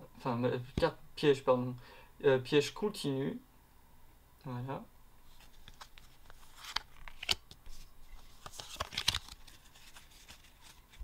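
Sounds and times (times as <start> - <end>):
cards scraping and tapping: 5.4 - 11.0.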